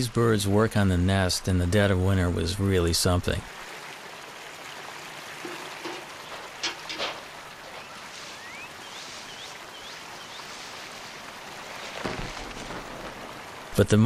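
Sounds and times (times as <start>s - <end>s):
flowing water: 0.0s - 14.0s
eagle calling: 7.7s - 10.8s.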